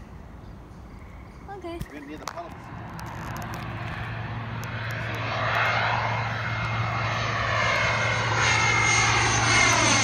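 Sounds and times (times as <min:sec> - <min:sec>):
jet engines whining: 0:02.4 - 0:10.0.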